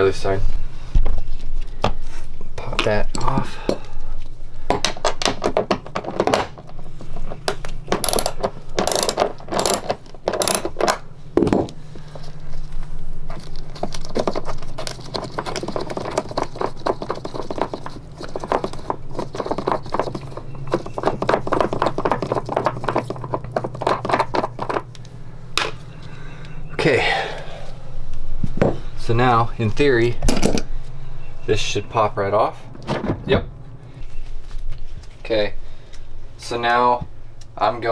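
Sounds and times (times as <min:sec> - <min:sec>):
steady low hum: 0:00.0 - 0:37.9
ratchet wrench clicking: 0:08.0 - 0:10.7.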